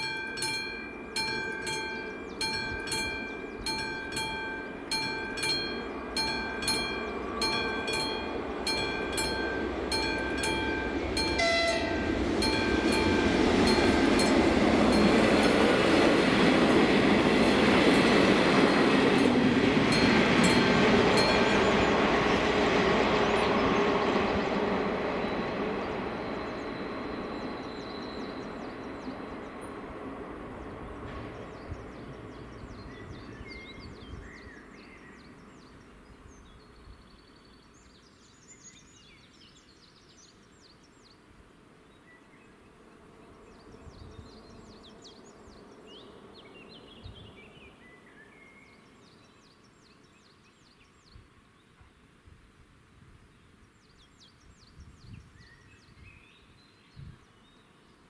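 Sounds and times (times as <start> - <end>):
train rail rumble: 0.0 - 36.3.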